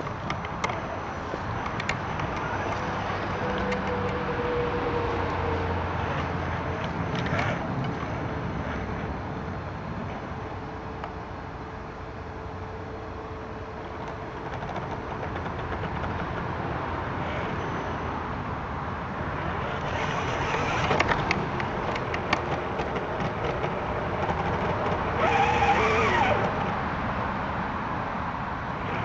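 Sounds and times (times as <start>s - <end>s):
tyres clicking and crunching: 0.0s - 4.4s, 6.0s - 8.4s, 19.3s - 26.9s
toy truck motor drone: 0.0s - 9.1s, 19.2s - 27.0s, 28.8s - 29.0s
motor whine: 0.0s - 15.7s, 17.2s - 26.9s, 28.7s - 29.0s.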